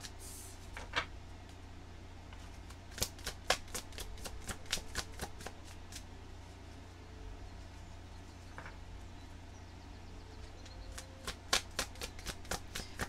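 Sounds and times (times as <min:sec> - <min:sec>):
cards being shuffled: 0:02.4 - 0:06.1, 0:11.0 - 0:13.0.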